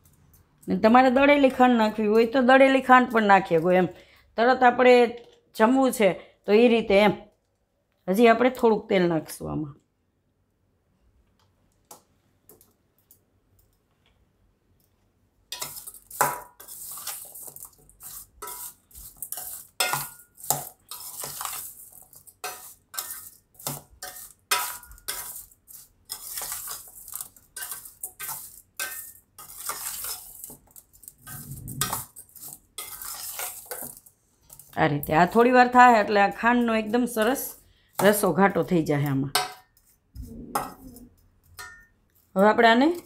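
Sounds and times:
spoon scraping a metal bowl: 15.5s - 34.8s.

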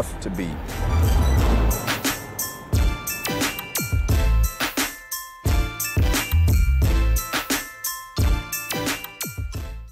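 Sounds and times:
music with heavy bass hits: 0.7s - 7.5s.

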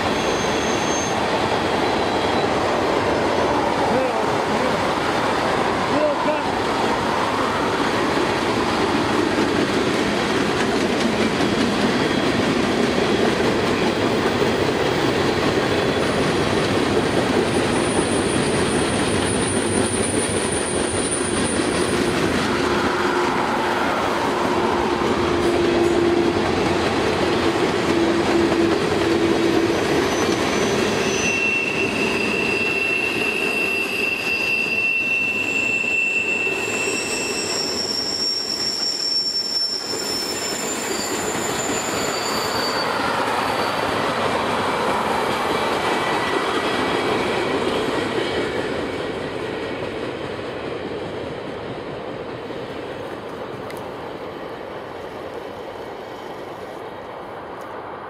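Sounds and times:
train wheel squeal: 0.0s - 2.8s, 10.9s - 16.6s, 17.3s - 49.0s
freight train wheels rumbling: 0.0s - 58.0s.

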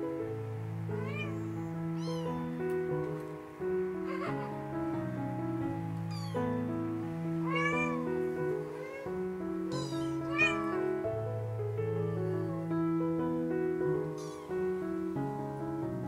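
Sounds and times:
slow piano music: 0.0s - 16.0s
kitten mewing: 0.9s - 2.4s, 4.0s - 4.7s, 6.1s - 6.4s, 7.4s - 11.1s, 12.0s - 12.6s, 14.1s - 14.6s.

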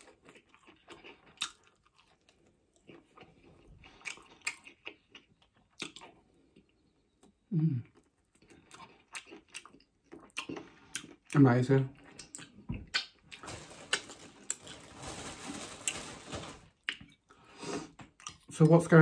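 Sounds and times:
chewing and crunching food: 0.0s - 18.9s
person humming: 7.5s - 7.8s
wet mouth clicks: 12.1s - 13.2s.

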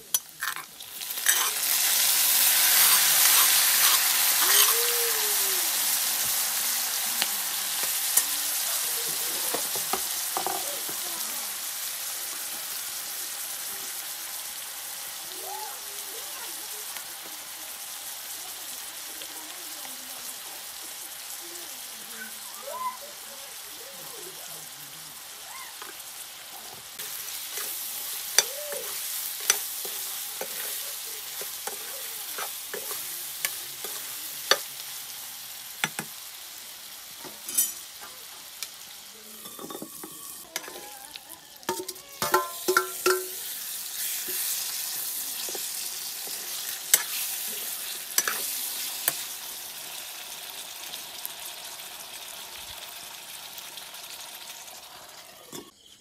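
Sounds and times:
curry sizzling in a wok: 0.0s - 56.0s
metal spoon scraping wok: 0.1s - 4.8s, 27.0s - 35.0s, 37.3s - 37.9s, 39.4s - 40.9s, 41.6s - 49.4s
spoon knocking against pan: 9.5s - 10.6s, 41.7s - 43.4s.

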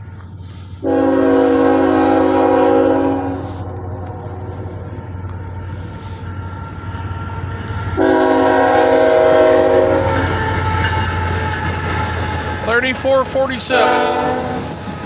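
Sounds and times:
train rumble: 0.0s - 15.0s
locomotive air horn blast: 0.8s - 4.8s, 8.0s - 10.4s, 13.6s - 14.8s.

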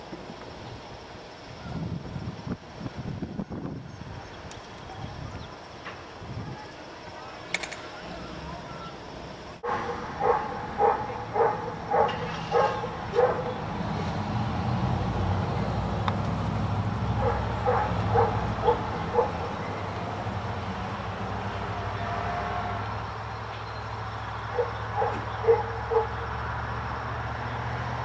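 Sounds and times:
dog barking: 9.6s - 13.6s, 17.2s - 19.6s, 24.5s - 26.3s.

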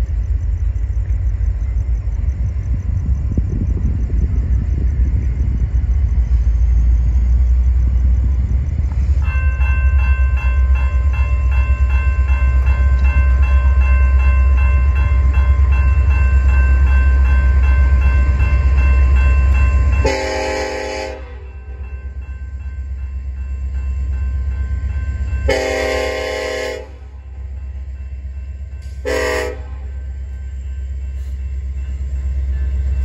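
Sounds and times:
heavy low rumble: 0.0s - 9.2s
railroad crossing bell ringing: 6.6s - 33.0s
locomotive horn: 20.0s - 21.8s, 25.5s - 27.2s, 29.0s - 29.9s.

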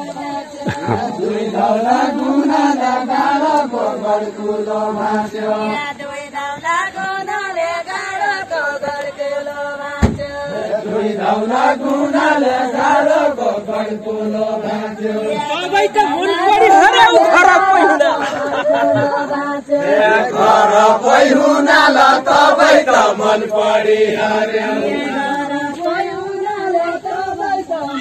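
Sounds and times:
group singing folk song: 0.0s - 28.0s
single bump: 10.0s - 10.3s.

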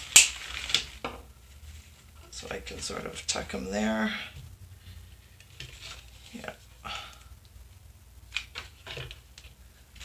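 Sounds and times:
rustling of artificial flowers: 0.0s - 7.2s.

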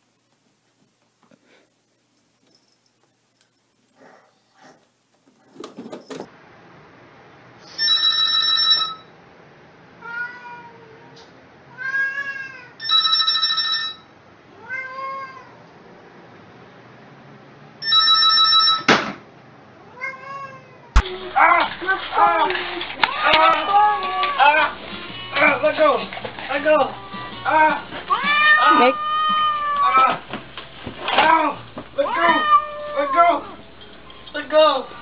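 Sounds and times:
telephone ringing: 7.7s - 9.2s, 12.8s - 14.2s, 17.8s - 18.9s
cat meowing: 10.0s - 12.8s, 14.6s - 15.6s, 19.8s - 21.5s, 27.5s - 30.2s, 31.2s - 33.6s.

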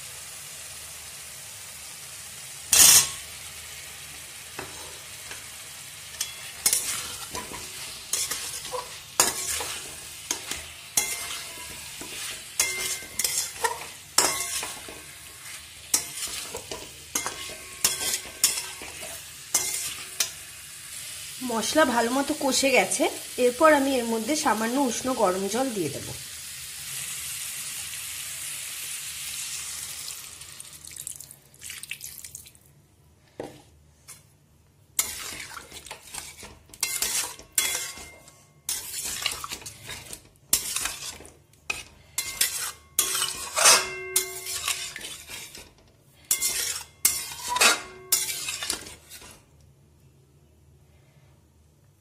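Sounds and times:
curry sizzling in a pan: 0.0s - 31.2s, 35.0s - 49.5s
spatula scraping a pan: 2.7s - 3.2s, 4.6s - 20.5s, 35.0s - 49.5s.

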